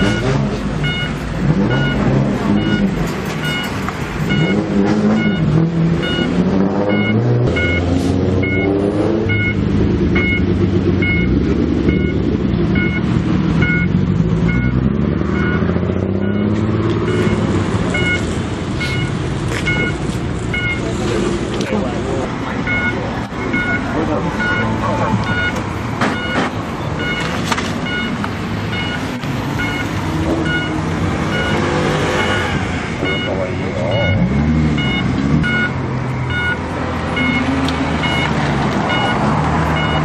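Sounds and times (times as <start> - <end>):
short electronic beep: 0.0 - 3.7, 4.3 - 9.6, 11.0 - 11.3, 11.9 - 12.2, 12.8 - 13.9, 16.2 - 20.8, 22.7 - 25.6, 27.0 - 29.0, 29.6 - 36.6, 37.2 - 38.3, 38.9 - 39.2, 39.8 - 40.0
car engines revving: 0.0 - 40.0.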